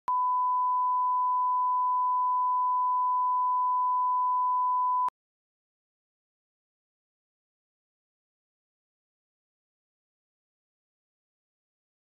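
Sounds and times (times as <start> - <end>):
steady reference tone beep: 0.1 - 5.1.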